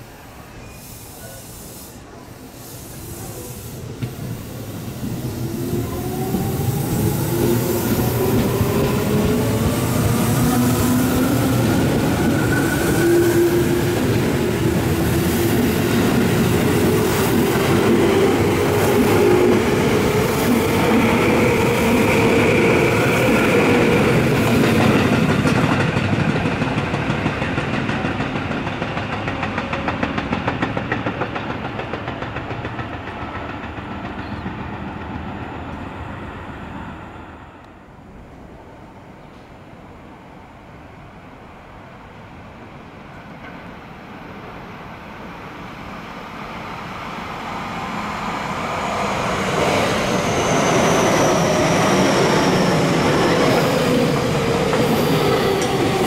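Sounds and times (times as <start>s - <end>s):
train wheels rumbling and clattering: 3.1s - 36.3s, 47.5s - 56.0s.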